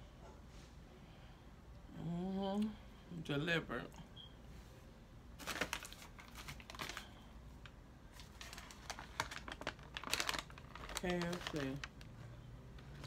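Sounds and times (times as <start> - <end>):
paper packaging crinkling: 5.4 - 12.2.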